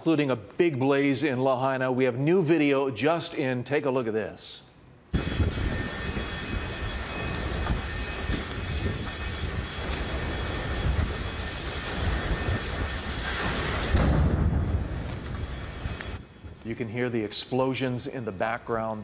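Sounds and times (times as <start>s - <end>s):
fire roaring: 5.1s - 16.7s
explosions popping: 7.2s - 16.2s.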